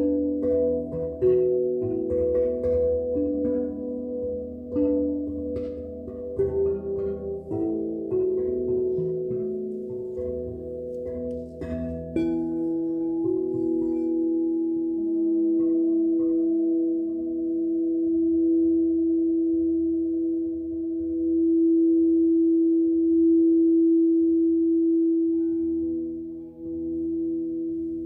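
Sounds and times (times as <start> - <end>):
singing bowl sustained tone: 0.0 - 28.0.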